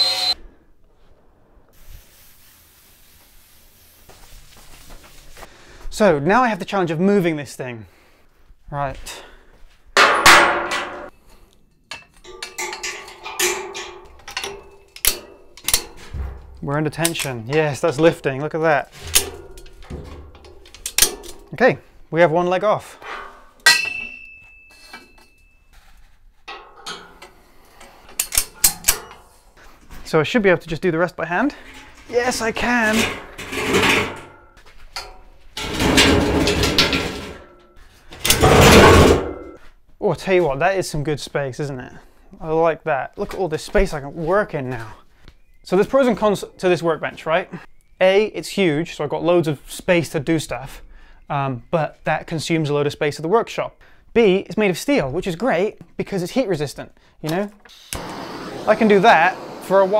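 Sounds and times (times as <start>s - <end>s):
metal hardware striking workbench: 10.0s - 11.2s, 11.9s - 18.2s, 18.9s - 21.5s, 23.0s - 25.6s, 26.5s - 27.4s, 28.1s - 29.4s, 32.1s - 39.6s
metallic clicks and knocks: 11.9s - 18.1s, 18.9s - 21.6s, 26.5s - 29.3s
metal on metal scrape: 11.9s - 18.2s, 18.8s - 21.6s, 22.9s - 29.6s, 31.4s - 39.6s.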